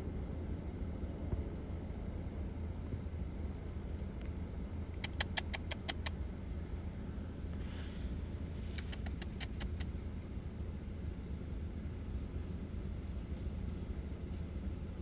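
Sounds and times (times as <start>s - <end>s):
low background rumble: 0.0s - 15.0s
rapid sharp high clicks: 5.0s - 6.2s, 8.6s - 9.9s.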